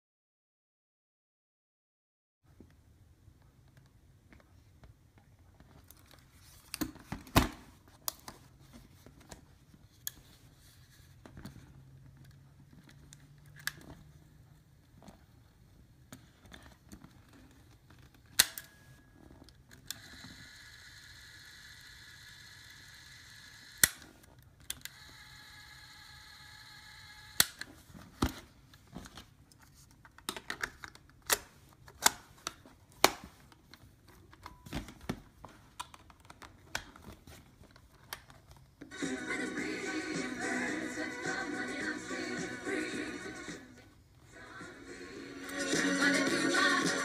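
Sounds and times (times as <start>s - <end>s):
cassette motor whirring: 24.8s - 27.7s.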